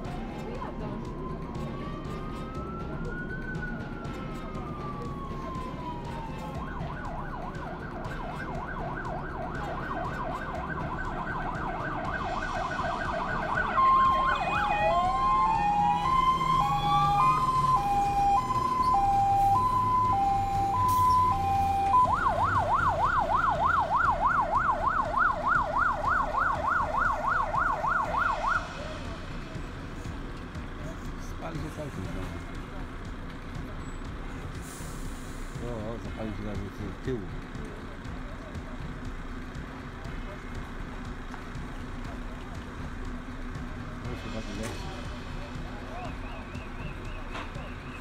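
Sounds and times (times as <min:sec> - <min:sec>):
fire engine siren: 0:00.0 - 0:31.1, 0:40.6 - 0:48.0
truck engine running low: 0:00.0 - 0:48.0.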